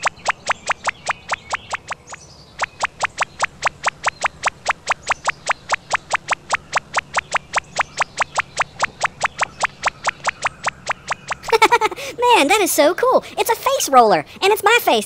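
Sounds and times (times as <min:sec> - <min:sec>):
fast train of sharp ticks: 0:00.0 - 0:11.6
low steady hum: 0:00.0 - 0:13.4.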